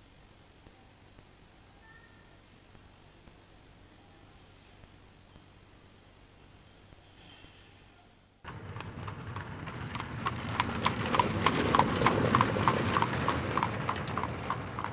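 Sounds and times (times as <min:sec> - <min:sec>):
horse hooves clip-clopping: 0:08.4 - 0:14.9.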